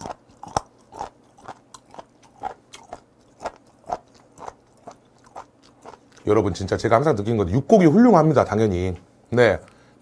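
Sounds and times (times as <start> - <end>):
wet chewing clicks: 0.0 - 7.1.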